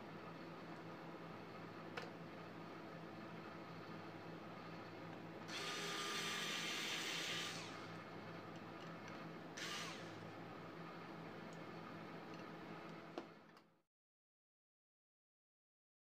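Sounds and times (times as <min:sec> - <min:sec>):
rotary tool whining: 0:05.5 - 0:07.9, 0:09.6 - 0:10.1.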